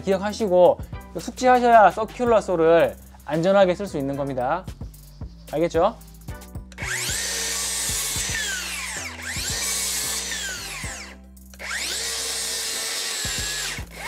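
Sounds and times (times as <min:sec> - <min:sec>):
circular saw cutting timber: 0:06.8 - 0:14.0.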